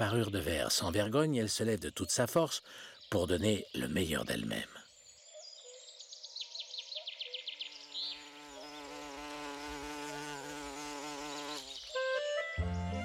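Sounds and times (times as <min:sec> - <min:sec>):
bumblebee buzzing: 0:07.6 - 0:13.0.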